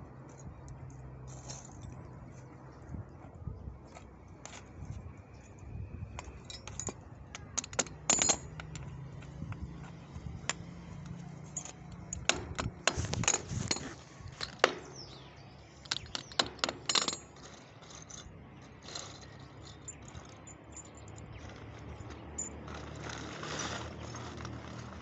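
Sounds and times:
metal hardware clinking on concrete: 6.2s - 23.4s.

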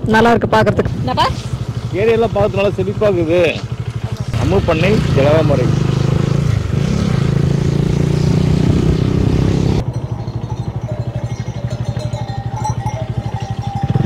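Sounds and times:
motorcycle engine running: 0.0s - 14.0s.

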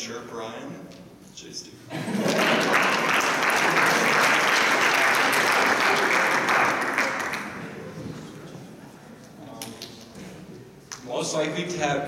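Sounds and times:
audience applauding: 2.0s - 8.3s.

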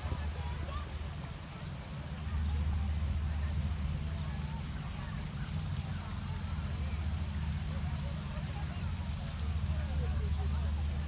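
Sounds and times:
insect chorus shrill drone: 0.0s - 11.0s.

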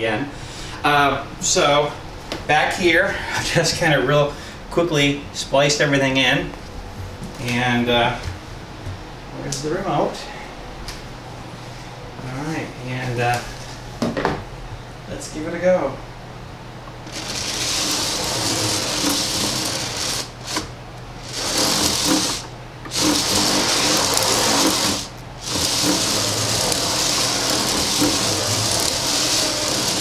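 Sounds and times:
gear motor whirring: 17.1s - 30.0s.

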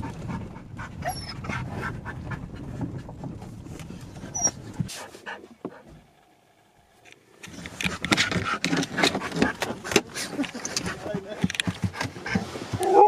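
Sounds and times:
dog whining: 1.0s - 1.5s, 4.3s - 4.6s, 12.8s - 13.0s.

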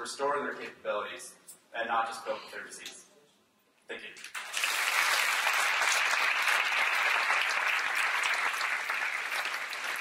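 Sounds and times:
audience applauding: 4.3s - 10.0s.

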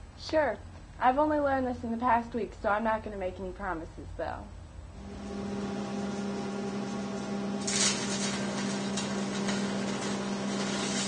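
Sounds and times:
welder humming: 4.9s - 11.0s
welding arc crackling and popping: 5.0s - 11.0s.

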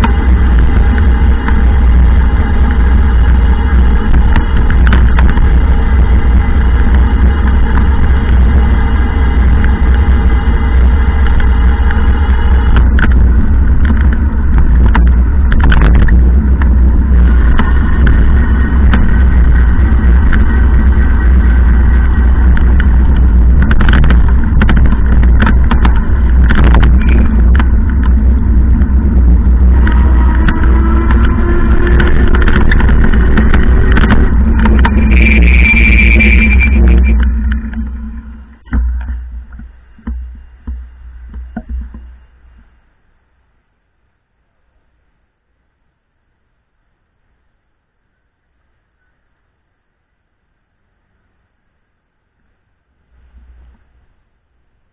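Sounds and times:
car engine and tyre rumble: 0.0s - 47.9s.

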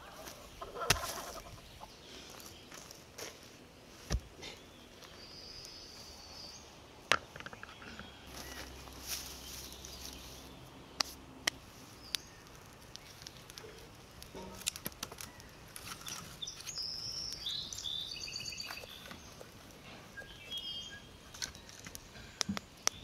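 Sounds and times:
birds chirping: 0.0s - 23.0s
firewood knocking and clattering: 7.1s - 8.1s.

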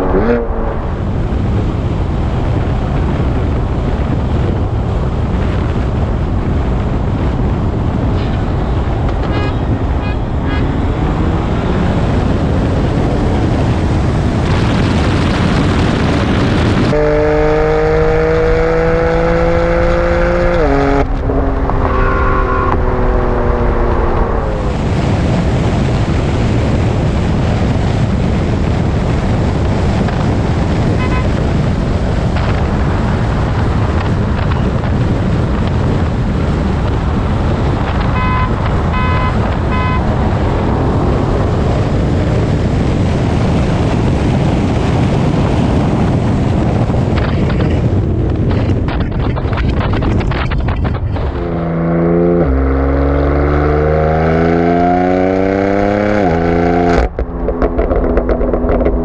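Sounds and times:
car engine revving: 0.0s - 1.7s, 10.3s - 15.3s, 16.2s - 25.5s, 50.6s - 59.0s
road roar: 0.0s - 59.0s
wind rush: 0.0s - 59.0s.

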